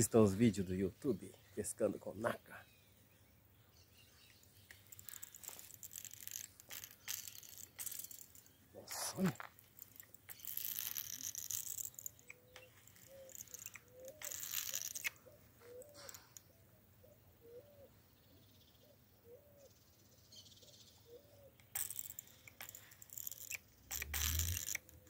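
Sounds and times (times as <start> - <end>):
fishing reel drag buzzing: 4.8 - 16.4, 21.6 - 25.0.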